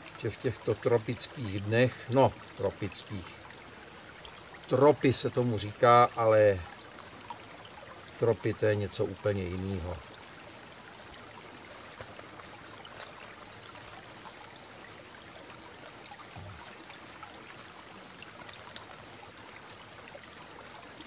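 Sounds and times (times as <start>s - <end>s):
brook flowing over stones: 0.0s - 21.0s.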